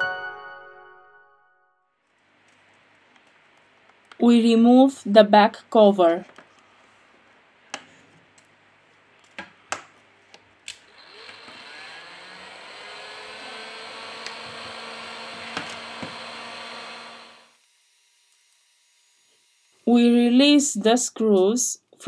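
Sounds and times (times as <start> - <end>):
small motor whirring: 10.9 - 19.9.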